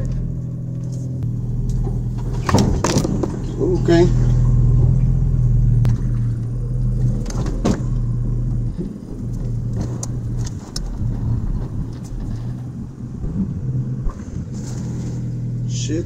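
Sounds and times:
vehicle engine running at low revs: 0.0 - 16.0
knocks and clanks from truck: 1.2 - 15.4.

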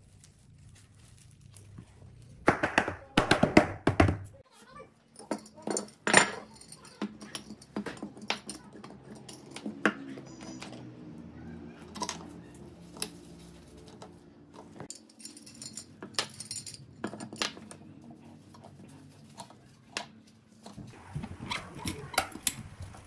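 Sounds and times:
metal clamps clinking and knocking: 5.1 - 10.9, 13.8 - 17.9.

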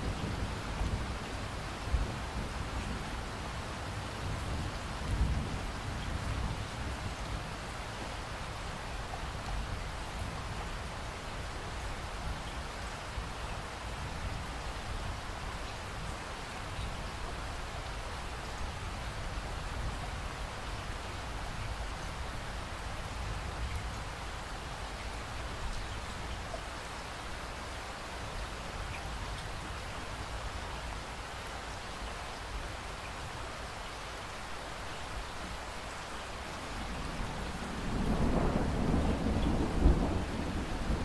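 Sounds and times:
steady rain falling: 0.0 - 41.0
thunder rolling: 37.1 - 41.0.

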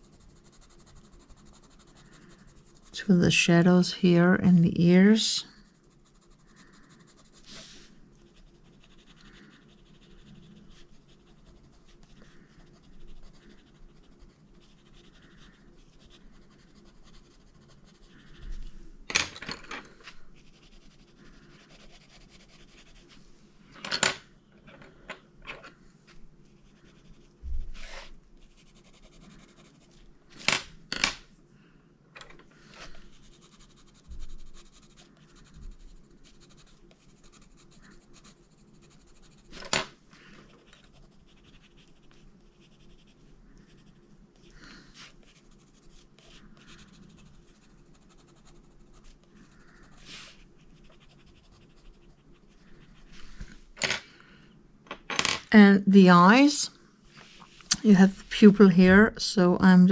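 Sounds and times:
pencil scratching on paper: 0.0 - 3.0, 4.9 - 18.8, 20.4 - 23.2, 26.4 - 30.0, 32.8 - 39.7, 40.6 - 53.4.

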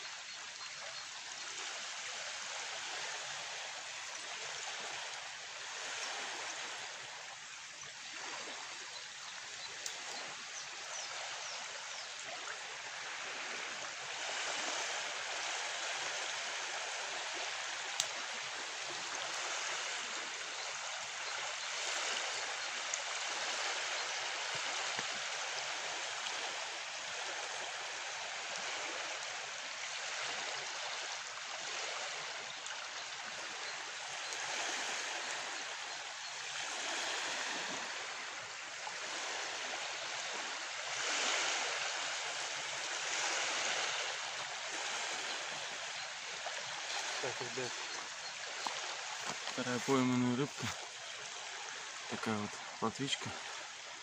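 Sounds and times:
flowing river water: 0.0 - 54.0
faint sharp clicks: 9.8 - 10.2, 18.0 - 18.2.

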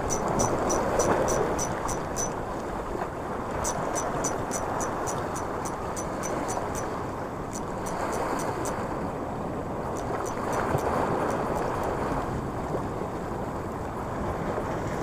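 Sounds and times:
fast high-pitched ticking: 0.0 - 2.4, 3.6 - 8.8, 10.0 - 11.9
surf washing against rocks: 0.0 - 15.0
wind on microphone: 0.0 - 15.0.

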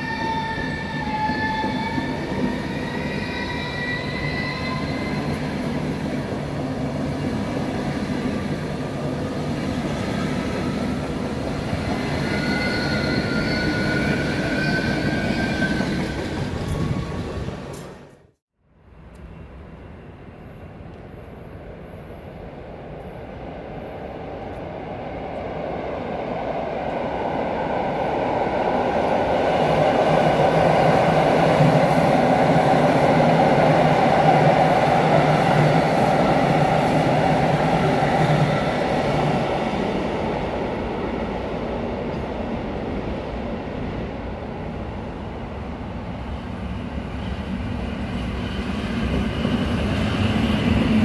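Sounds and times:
train rolling noise: 23.8 - 51.0.

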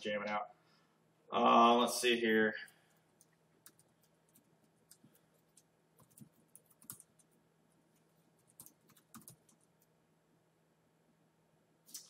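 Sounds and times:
typing on laptop keyboard: 2.7 - 9.9.

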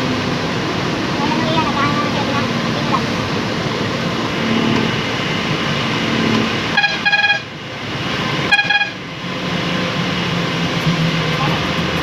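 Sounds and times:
bus engine and tyres on wet road: 0.0 - 12.0
vehicle horn double toots: 6.7 - 7.5, 8.5 - 9.0.

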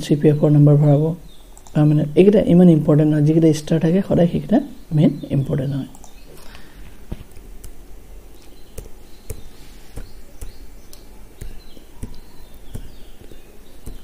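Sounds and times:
sharp clicks: 1.5 - 1.8, 5.9 - 6.2.

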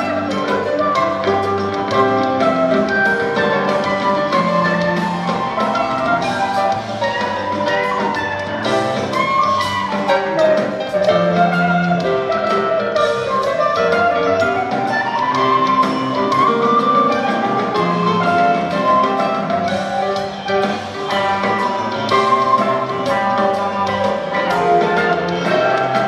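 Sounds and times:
bass guitar: 0.0 - 26.0
drums: 0.0 - 26.0
electric guitars: 0.0 - 26.0
keyboards: 0.0 - 26.0.

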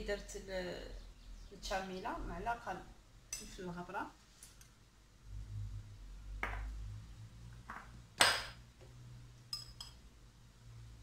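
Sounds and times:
metal spoon clinking on dishes: 3.3 - 3.6, 9.5 - 10.0.

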